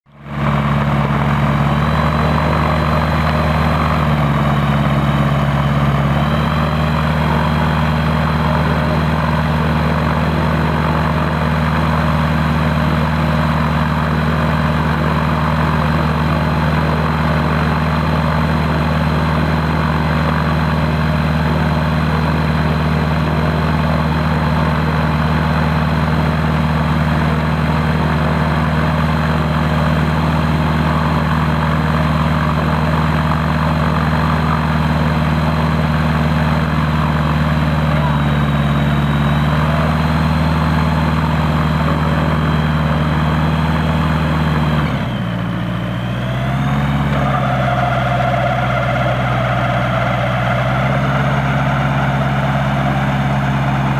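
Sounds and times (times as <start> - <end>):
aircraft engine and propeller running: 0.1 - 53.9
thin high whine: 46.9 - 53.9.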